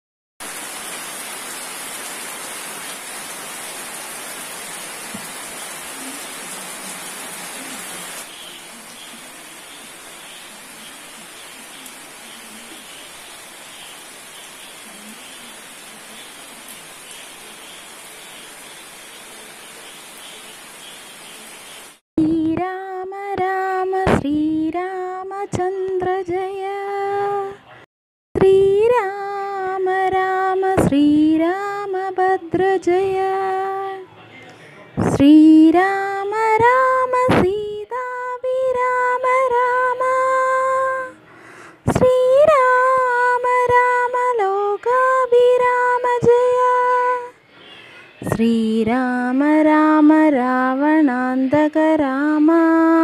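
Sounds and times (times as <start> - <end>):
steady rain pouring: 0.4 - 22.0
water running off a roof: 0.4 - 22.0.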